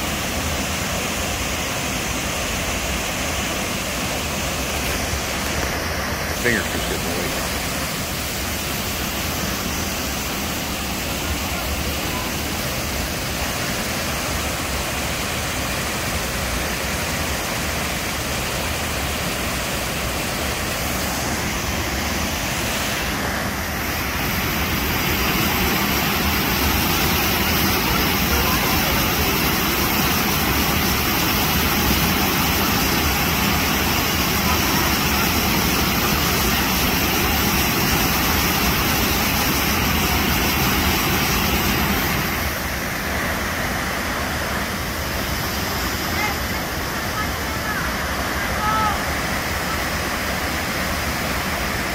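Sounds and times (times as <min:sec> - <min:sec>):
waterfall roaring: 0:00.0 - 0:51.9.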